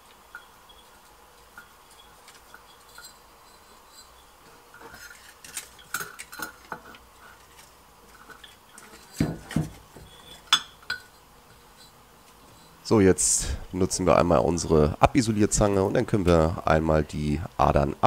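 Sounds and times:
glass bottle clinking: 0:10.1 - 0:11.2.

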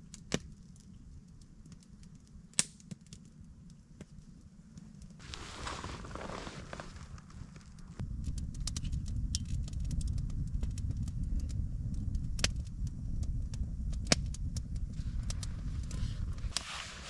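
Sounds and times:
crackles and pops of burning wood: 0:00.0 - 0:17.0
low rumble of flames: 0:00.0 - 0:17.0.

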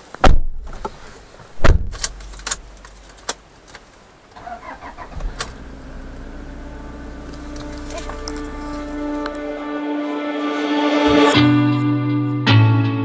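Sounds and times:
heavy thump: 0:01.6 - 0:02.1
car engine starting and idling: 0:04.1 - 0:09.7.

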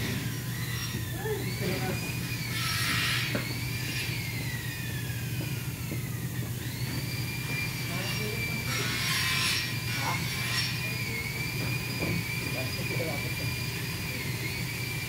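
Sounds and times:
high machine whine: 0:00.0 - 0:15.0
low machinery hum: 0:00.0 - 0:15.0.

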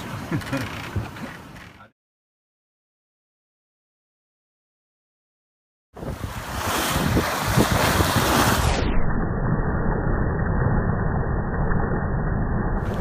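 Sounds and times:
water splashing along hull: 0:00.0 - 0:01.9, 0:06.0 - 0:08.8, 0:12.8 - 0:13.0
wind buffeting microphone: 0:06.0 - 0:08.6.

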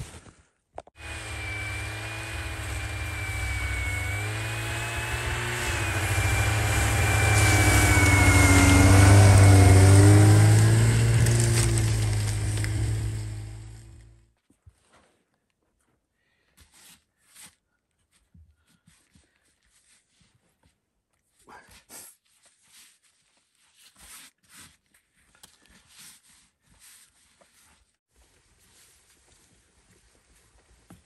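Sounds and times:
vehicle engine running: 0:01.0 - 0:14.2.

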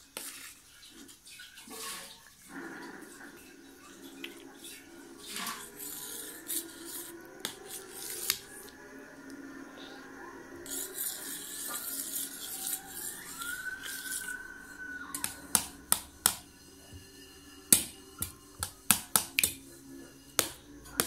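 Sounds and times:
spoon scraping metal plate: 0:04.2 - 0:08.7, 0:10.6 - 0:21.0.

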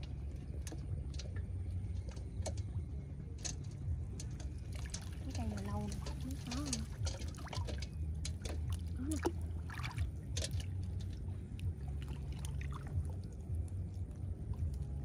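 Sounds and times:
steady low drone: 0:00.0 - 0:15.0
water sloshing and splashing: 0:00.0 - 0:15.0.

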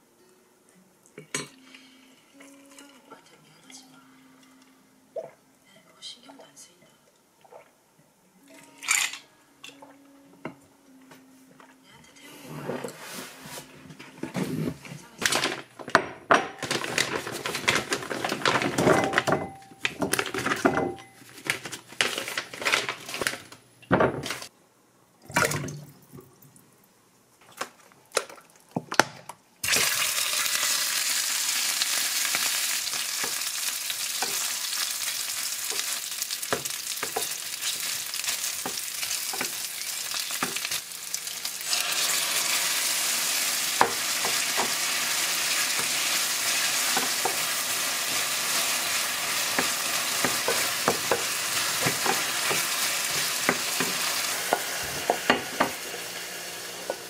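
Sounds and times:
food sizzling in a pan: 0:29.6 - 0:57.0.

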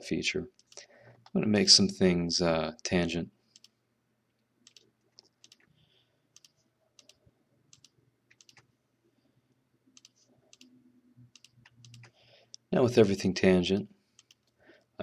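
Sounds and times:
computer mouse clicks: 0:00.6 - 0:01.4, 0:03.5 - 0:03.8, 0:04.6 - 0:05.7, 0:06.3 - 0:08.7, 0:10.0 - 0:12.6, 0:14.2 - 0:14.6.

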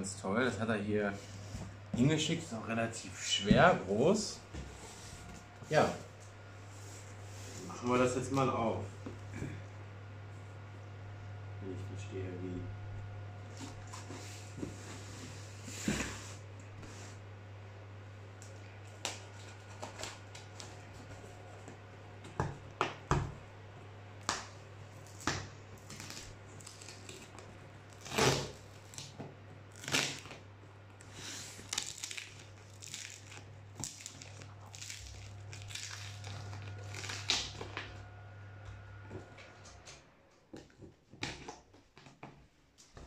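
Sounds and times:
knife cutting packing tape: 0:25.0 - 0:30.4, 0:31.2 - 0:37.8.

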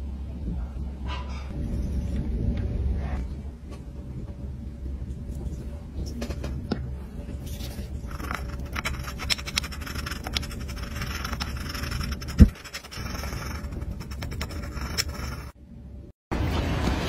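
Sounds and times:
wooden stick scraping in glass dish: 0:07.4 - 0:15.6.

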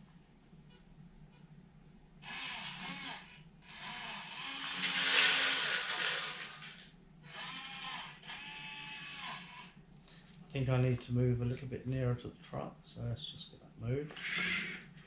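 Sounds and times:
servos whirring: 0:02.2 - 0:09.8
wood chips pouring into plastic: 0:04.8 - 0:06.9.

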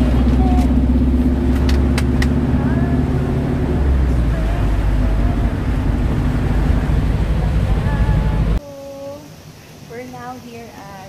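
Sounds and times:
engine and tyres on wet road: 0:00.0 - 0:08.6.

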